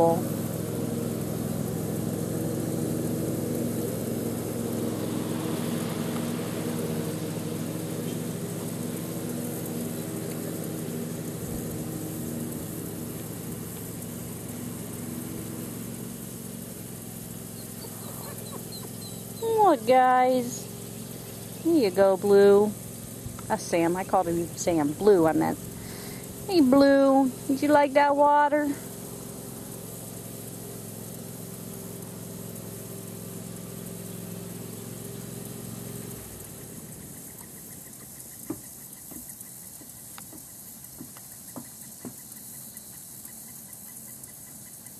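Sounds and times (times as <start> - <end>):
background hiss: 0.0 - 44.9
mechanical hum: 0.0 - 44.9.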